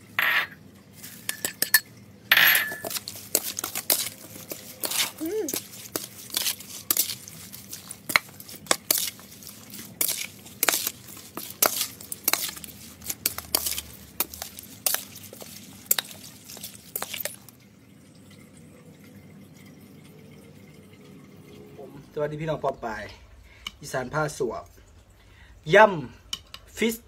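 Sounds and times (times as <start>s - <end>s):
spoon clinking against a dish: 1.2s - 9.4s
soft squishing: 2.8s - 17.6s.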